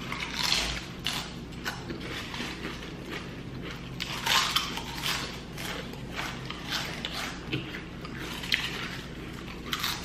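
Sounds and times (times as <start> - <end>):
potato chips crunching: 0.0 - 10.0.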